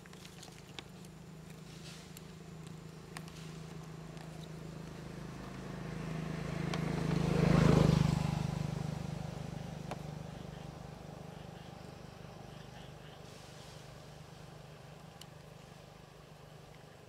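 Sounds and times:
vehicle driving past: 0:03.4 - 0:15.0.

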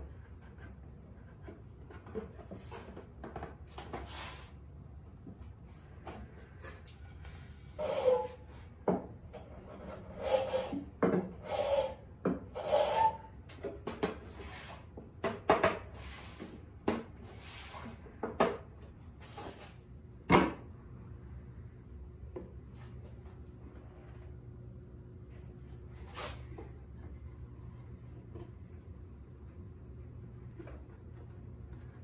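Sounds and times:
wood scraping against wood: 0:06.0 - 0:08.6, 0:25.3 - 0:32.0.

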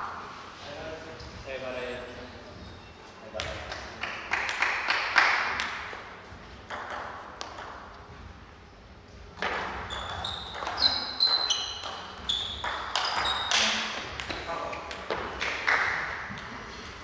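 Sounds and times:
shoe squeaks: 0:02.5 - 0:03.1, 0:09.8 - 0:13.9
table tennis ball clicks: 0:09.4 - 0:17.0.

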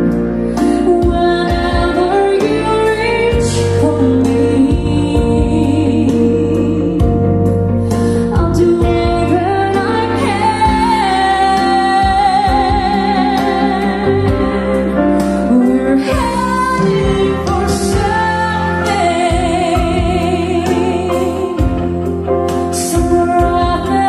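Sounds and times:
sustained bass notes: 0:00.0 - 0:24.0
person singing slow melody: 0:07.9 - 0:24.0.

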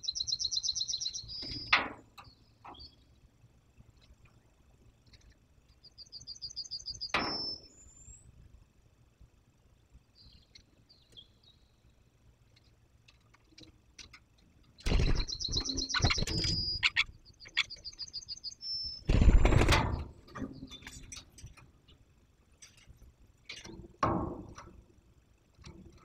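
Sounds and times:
woodpecker high-pitched calls: 0:00.0 - 0:01.7, 0:05.8 - 0:08.2, 0:15.0 - 0:19.1
wings fluttering: 0:14.8 - 0:18.0, 0:19.0 - 0:21.6.

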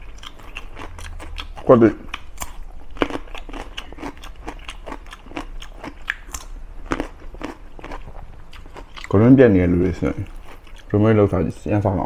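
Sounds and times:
wet chewing mouth clicks: 0:00.0 - 0:09.2
light food crunch: 0:00.0 - 0:11.0.

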